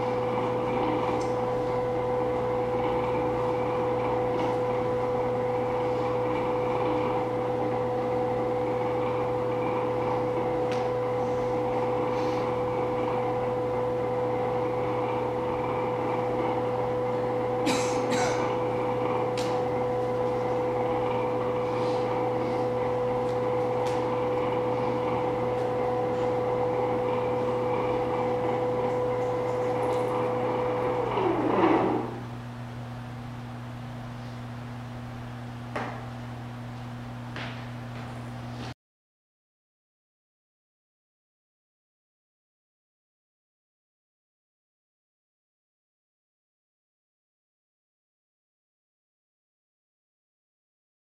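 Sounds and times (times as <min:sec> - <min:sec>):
electronic drone tone: 0:20.3 - 0:32.4.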